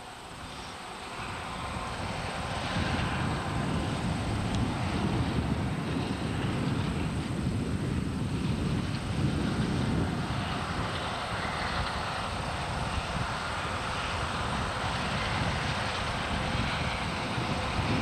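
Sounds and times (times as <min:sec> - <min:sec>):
combine harvester droning: 0:00.0 - 0:18.0.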